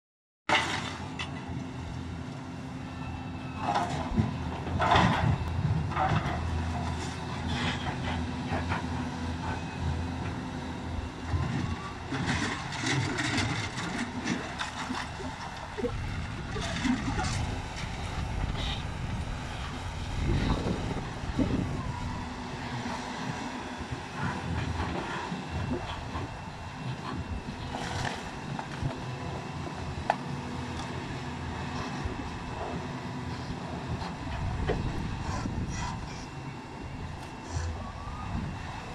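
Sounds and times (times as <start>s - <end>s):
diesel engine running: 0.5s - 38.9s.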